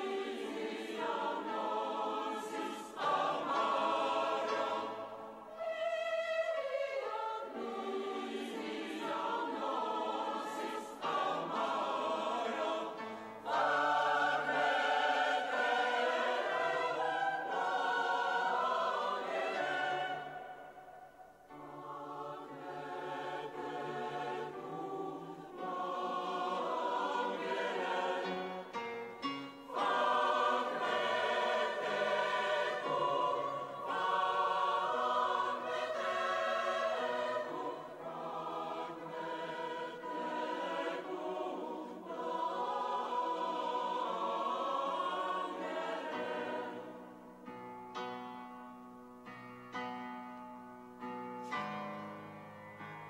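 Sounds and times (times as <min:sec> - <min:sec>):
church choir singing: 0:00.0 - 0:48.5.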